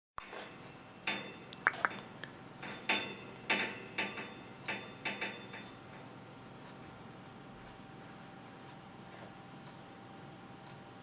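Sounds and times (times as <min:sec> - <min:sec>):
parrot chirping and clicking: 0:00.6 - 0:05.8.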